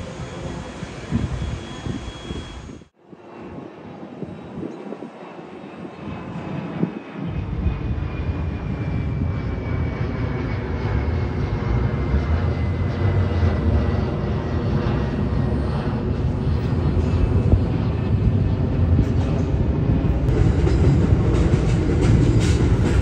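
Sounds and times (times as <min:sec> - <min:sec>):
high whine falling in pitch: 0:00.0 - 0:02.9
subway train rumbling: 0:00.0 - 0:02.9, 0:11.0 - 0:23.0.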